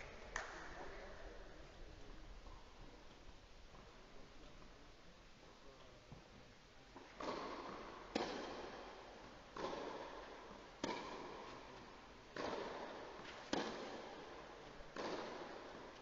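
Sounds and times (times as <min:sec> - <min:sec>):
tennis racket hitting ball: 0:07.2 - 0:09.0, 0:09.6 - 0:11.6, 0:12.3 - 0:16.0.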